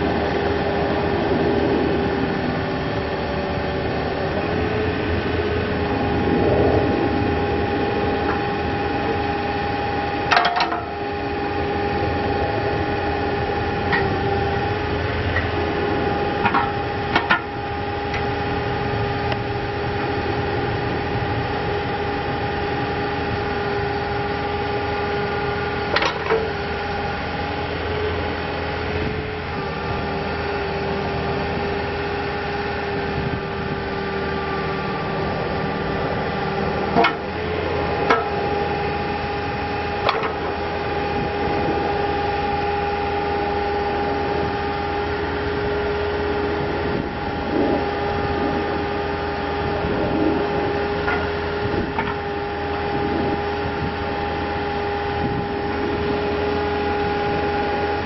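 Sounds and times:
excavator diesel engine running: 0.0s - 58.0s
hydraulic whine: 0.0s - 58.0s.

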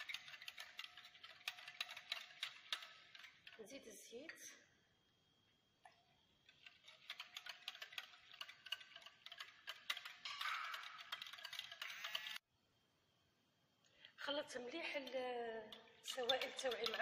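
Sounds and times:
whisk clicking against glass bowl: 0.0s - 3.6s, 6.5s - 12.4s, 15.7s - 17.0s.

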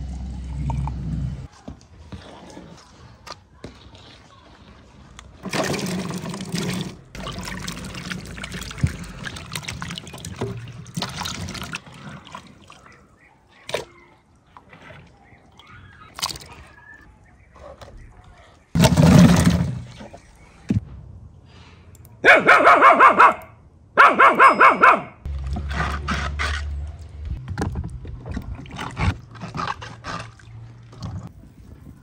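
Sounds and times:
water sloshing and splashing in bowl: 0.6s - 18.0s, 25.4s - 31.3s.

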